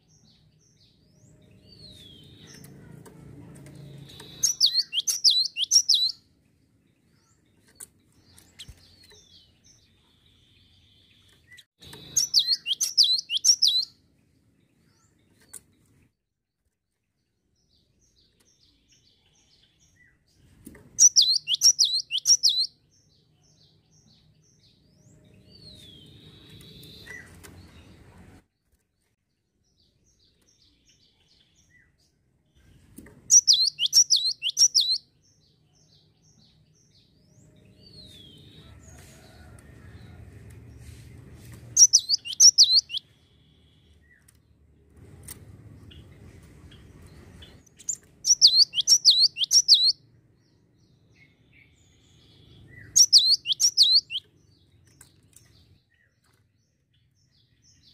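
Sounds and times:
bird singing sharp repeated notes: 4.0 - 6.2, 11.8 - 14.0, 21.0 - 22.8, 33.3 - 35.2, 41.8 - 44.2, 47.6 - 50.0, 51.1 - 54.3.

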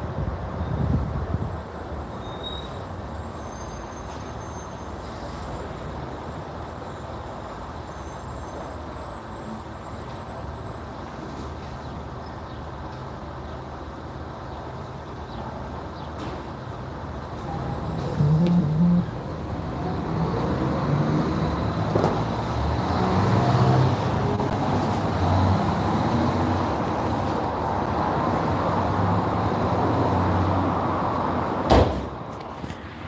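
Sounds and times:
car tailgate shutting thump: 31.7 - 32.1.

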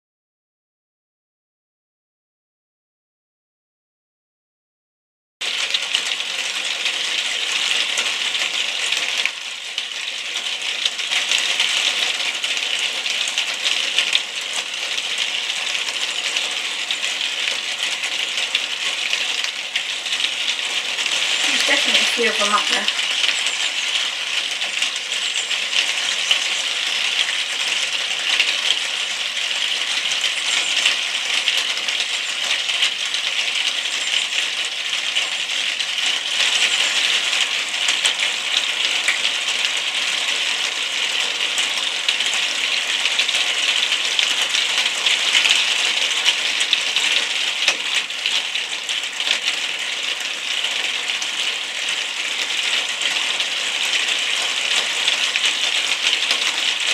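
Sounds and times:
rain pattering on hard surfaces: 5.4 - 56.9.

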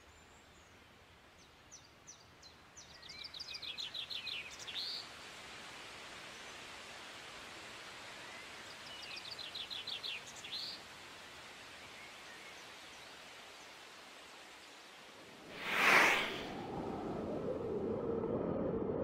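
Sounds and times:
breezy outdoor hiss: 0.0 - 17.9
small bird singing: 1.4 - 5.0.

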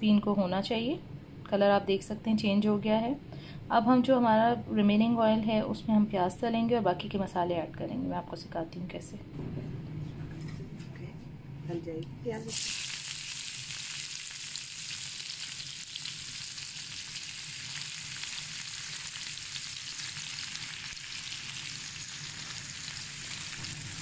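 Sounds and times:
onions sizzling in a frying pan: 12.4 - 24.0.

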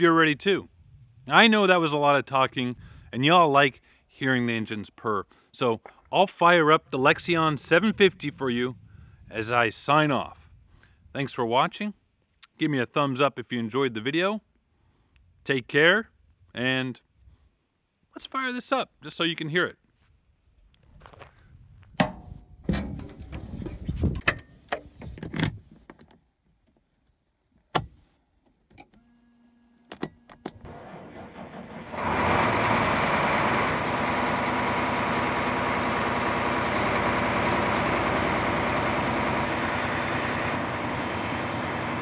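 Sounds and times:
diesel engine running: 30.7 - 42.0.

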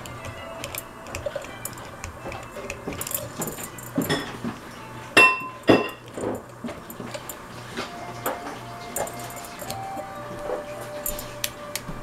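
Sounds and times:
metal tools clinking and rattling: 0.0 - 4.6, 8.2 - 11.4.

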